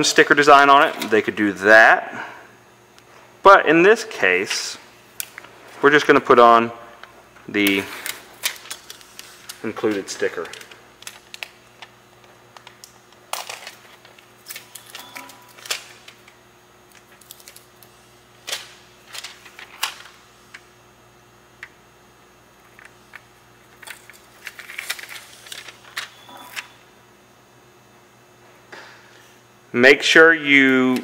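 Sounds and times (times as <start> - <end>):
plastic sticker sheet crinkling: 7.5 - 20.6, 23.7 - 26.7.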